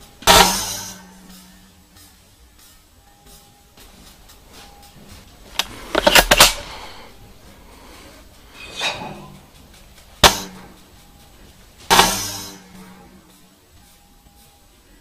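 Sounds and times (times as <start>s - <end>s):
airsoft rifle clicks: 5.5s - 6.9s
airsoft rifle sharp crack: 5.6s - 6.9s, 10.2s - 10.7s
airsoft rifle bursts: 5.6s - 7.1s.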